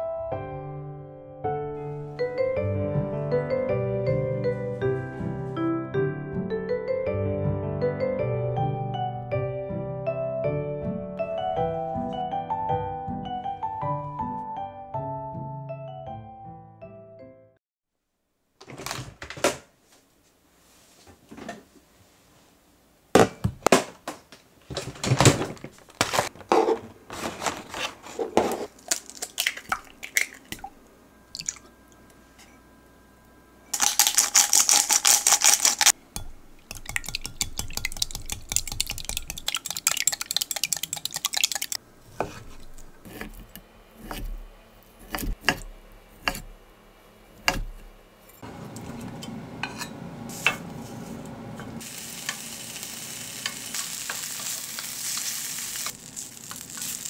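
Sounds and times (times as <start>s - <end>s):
utensils knocking: 33.8s - 41.8s
whisk beating eggs in glass jug: 33.8s - 41.8s
ham sizzling in a pan: 51.8s - 57.0s.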